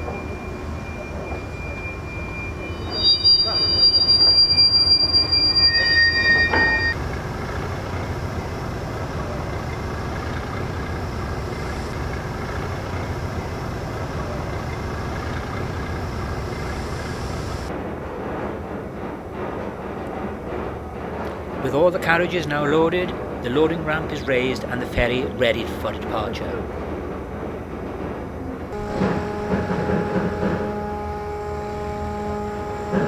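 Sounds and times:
rail wheels squealing: 0.0s - 17.7s, 28.8s - 33.0s
diesel locomotive rumbling: 0.0s - 33.0s.

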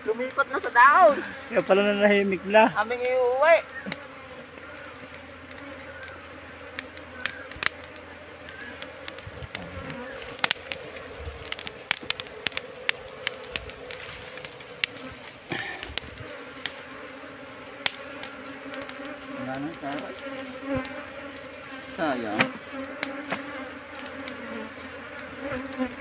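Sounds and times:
honey bees buzzing: 0.0s - 26.0s.

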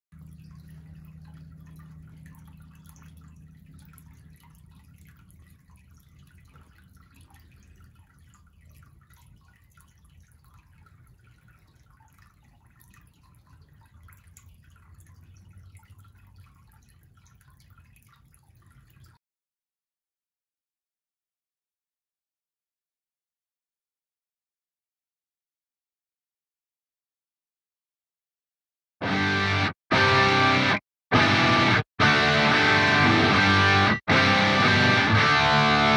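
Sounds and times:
water dripping and lapping: 0.1s - 19.2s
low steady hum: 0.2s - 19.2s.

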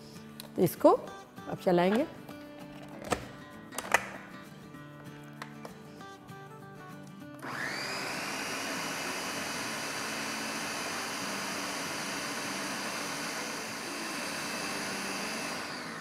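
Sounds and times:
blender motor whining: 7.4s - 16.0s.

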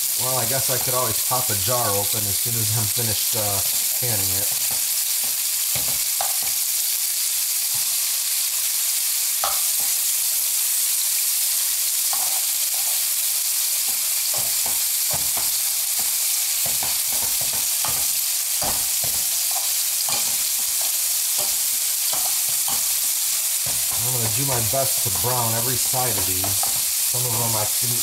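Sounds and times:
beef sizzling in oil: 0.0s - 28.0s
tongs clinking on pan: 2.6s - 6.6s, 9.4s - 10.0s, 12.1s - 13.1s, 13.8s - 28.0s.

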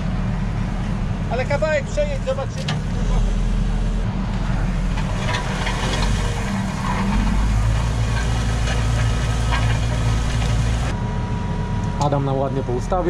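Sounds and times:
tractor engine under load: 0.0s - 11.0s
clicks and rattles: 4.9s - 10.9s.

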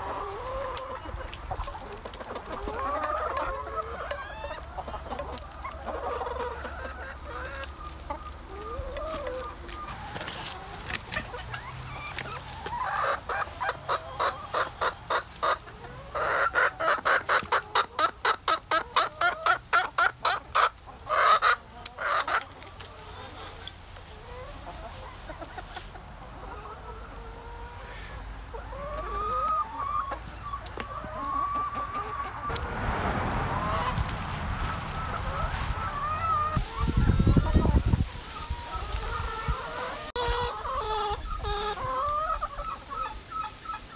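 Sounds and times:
hens clucking: 0.0s - 43.9s
rustling: 32.5s - 40.2s.

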